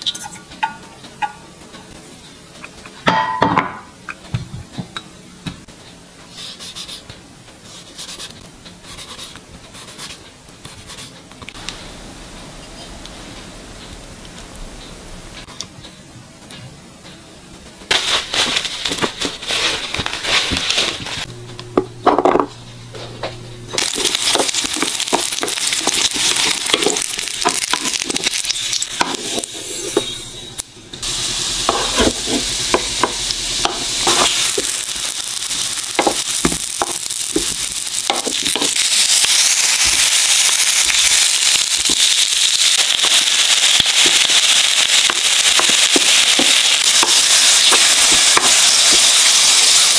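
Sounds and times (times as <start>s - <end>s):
oil sizzling in a frying pan: 23.8s - 30.3s, 31.0s - 49.9s.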